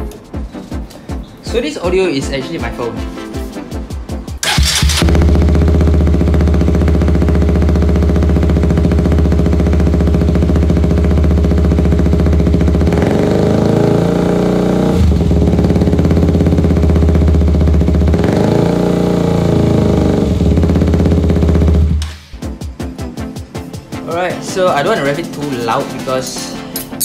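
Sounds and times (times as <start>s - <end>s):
motorcycle engine revving: 4.4s - 22.1s.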